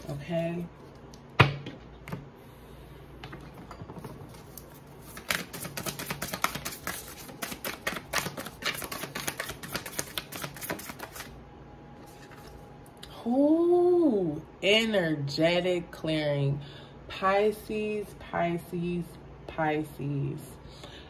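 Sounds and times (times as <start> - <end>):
cards being shuffled: 4.3 - 11.4.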